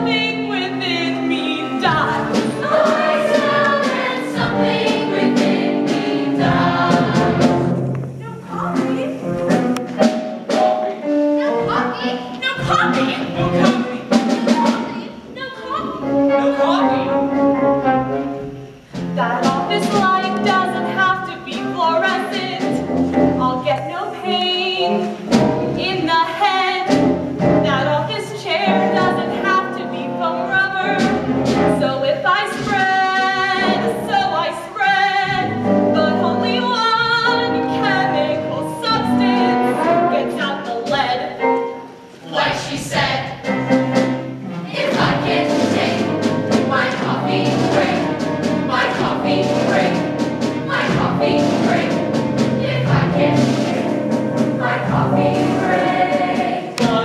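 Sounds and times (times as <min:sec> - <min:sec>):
instrumental accompaniment: 0:00.0 - 0:57.0
cast singing show tune: 0:01.8 - 0:07.6.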